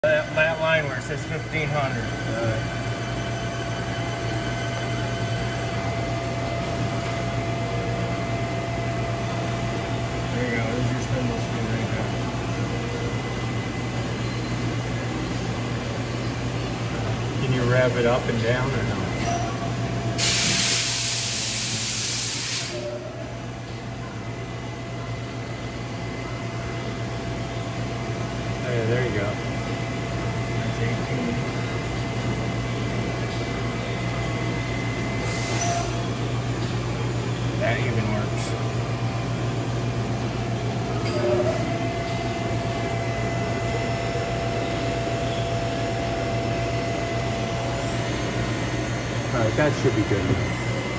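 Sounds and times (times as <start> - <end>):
lathe humming and whining: 0.0 - 50.9
loud hiss: 20.2 - 22.8.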